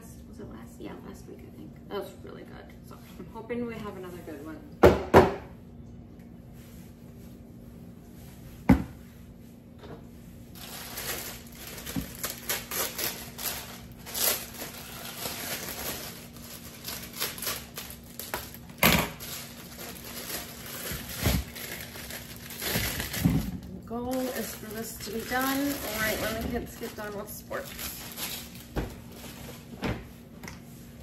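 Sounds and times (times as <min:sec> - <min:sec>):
plastic bag crinkling: 0:10.5 - 0:29.7.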